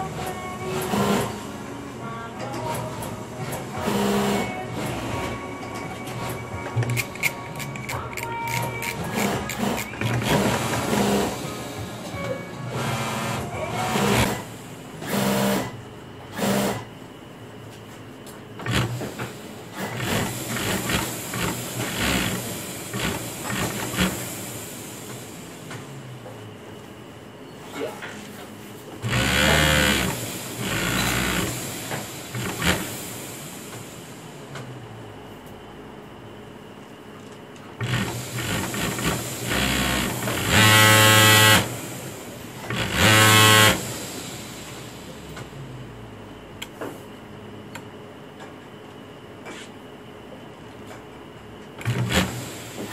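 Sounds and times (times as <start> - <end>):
machinery low hum: 0.0 - 52.9
sewing machine running: 0.2 - 1.4, 3.8 - 5.0, 6.9 - 11.5, 12.7 - 16.9, 18.6 - 19.1, 19.7 - 24.3, 29.0 - 33.0, 37.8 - 42.0, 42.6 - 44.0, 51.8 - 52.5
machinery hiss: 37.8 - 45.4.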